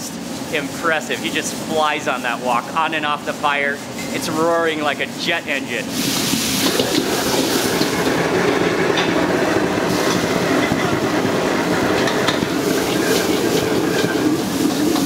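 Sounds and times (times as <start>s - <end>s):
wok burner roaring: 0.0s - 15.0s.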